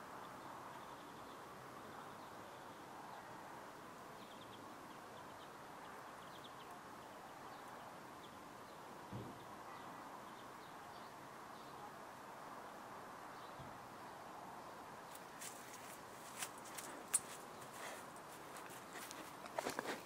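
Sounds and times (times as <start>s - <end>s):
low background hiss: 0.0s - 20.0s
low thump: 9.1s - 9.4s.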